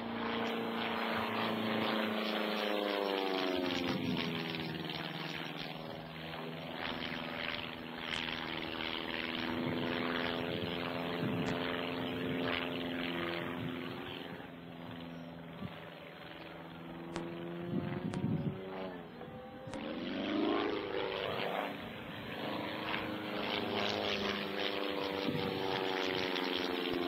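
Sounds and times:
propeller plane engine droning: 0.0 - 27.0.

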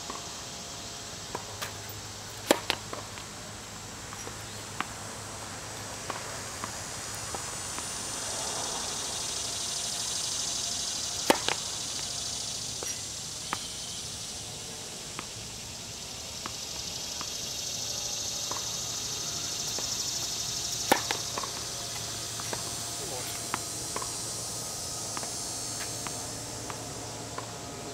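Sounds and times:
insects droning: 0.0 - 27.9
racket hitting tennis ball: 2.4 - 3.2, 11.2 - 12.1, 19.6 - 27.6
ball bouncing on hard court: 20.9 - 24.2.

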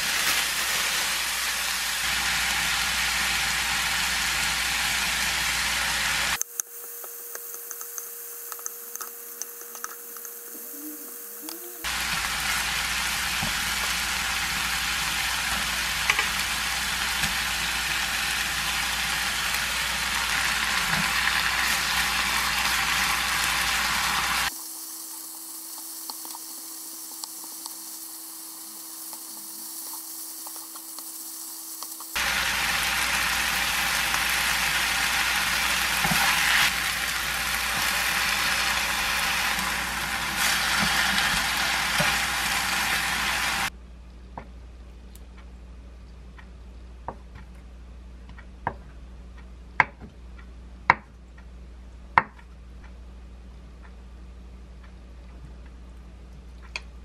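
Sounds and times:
meat sizzling in a frying pan: 0.0 - 6.4, 11.9 - 43.7.

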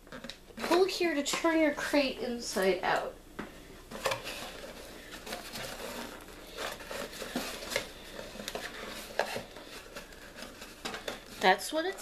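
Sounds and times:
cardboard box handled: 3.9 - 12.0.

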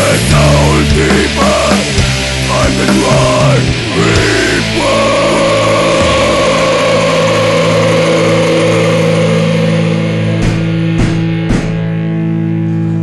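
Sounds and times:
held rock guitar chord: 0.0 - 13.0
sharp band hits: 10.3 - 12.1.

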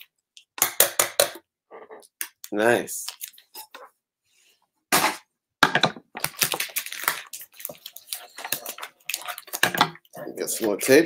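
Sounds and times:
paper packaging tearing: 6.2 - 8.5
paper and tape crackling: 6.2 - 9.6.

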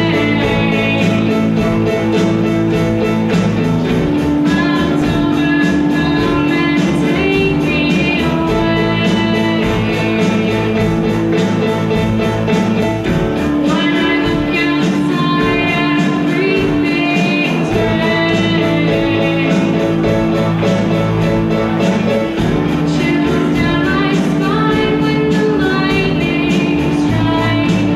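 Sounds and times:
girl singing: 0.0 - 1.9, 4.2 - 10.9, 13.6 - 20.1, 22.7 - 27.9
drums in steady beat: 0.0 - 27.9
electric guitars: 0.0 - 27.9
keyboard: 0.0 - 27.9.

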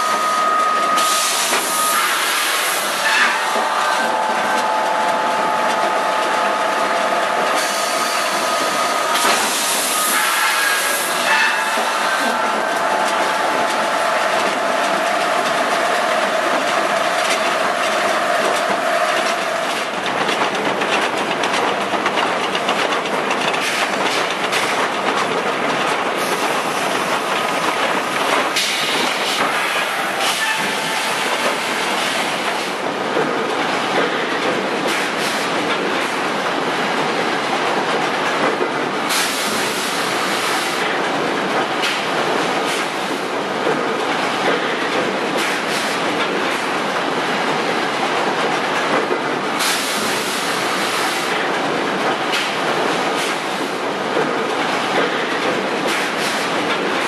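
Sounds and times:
machinery whine: 0.0 - 20.0.

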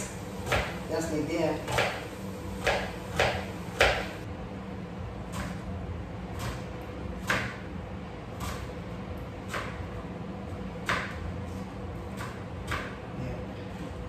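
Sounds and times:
knife chopping onion on board: 0.0 - 0.9, 1.5 - 4.2, 6.3 - 7.7, 8.3 - 8.8, 9.4 - 9.9, 10.8 - 11.2, 12.0 - 13.1.

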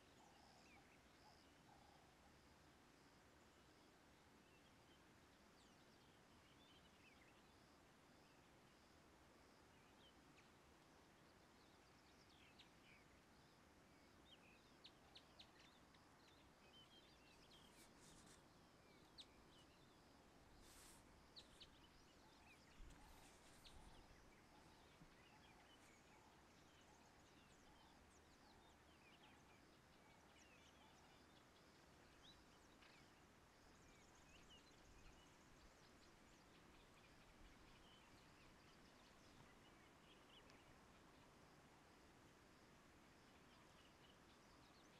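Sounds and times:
small birds chirping: 9.6 - 41.6.

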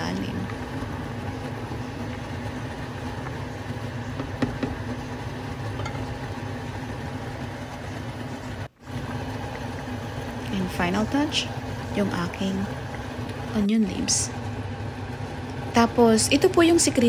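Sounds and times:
pot simmering on a gas stove: 0.0 - 17.0.

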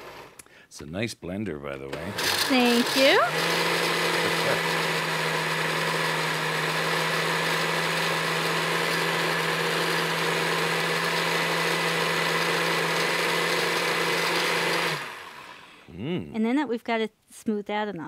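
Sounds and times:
blender motor humming: 0.0 - 0.4, 1.9 - 15.8.

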